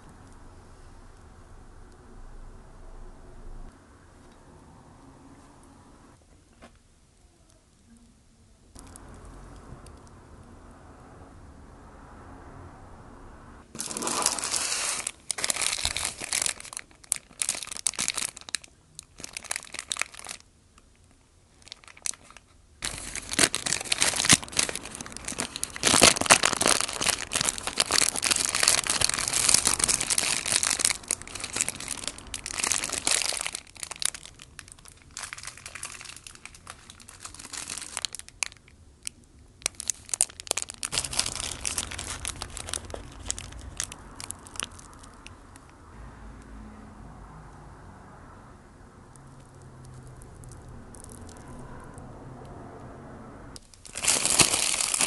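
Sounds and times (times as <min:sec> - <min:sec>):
paper wrapper crinkling: 0:13.7 - 0:20.5, 0:21.5 - 0:45.4, 0:53.6 - 0:55.0.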